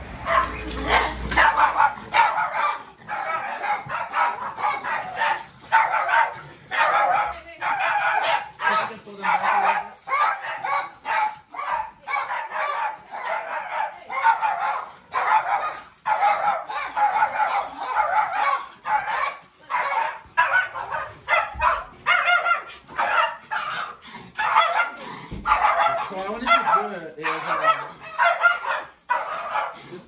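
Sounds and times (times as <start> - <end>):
small dogs barking: 0.2 - 30.0.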